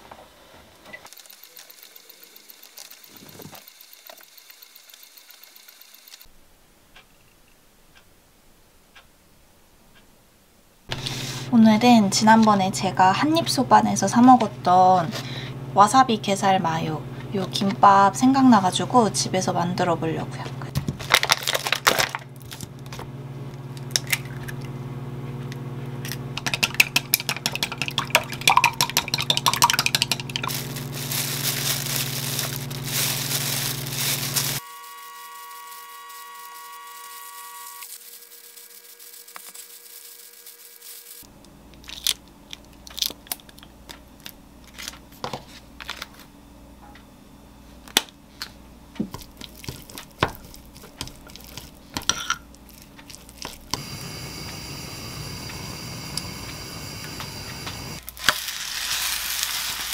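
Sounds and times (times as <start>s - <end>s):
steady low hum: 7.8s - 20.8s, 41.2s - 58.1s
plastic packaging crinkling and tearing: 20.9s - 22.7s, 29.9s - 34.6s, 37.8s - 43.6s, 49.2s - 52.0s, 52.6s - 53.8s, 58.0s - 59.9s
chopsticks scraping glass bowl: 49.4s - 53.6s.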